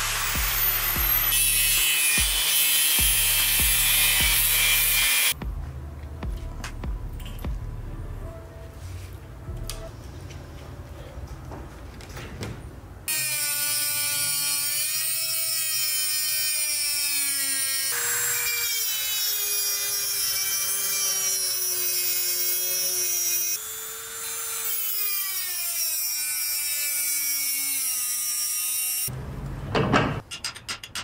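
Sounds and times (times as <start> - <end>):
rotary tool grinding steel: 0.0 - 5.4, 13.1 - 29.1.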